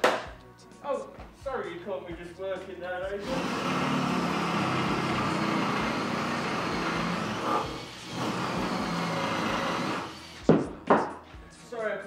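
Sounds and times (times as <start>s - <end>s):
electric drill drilling: 3.2s - 10.6s.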